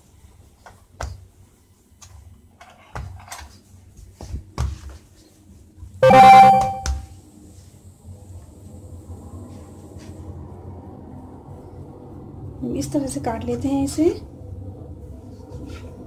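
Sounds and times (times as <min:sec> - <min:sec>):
hands rolling dough on board: 0:02.9 - 0:05.7
loud ringing tone: 0:06.0 - 0:07.0.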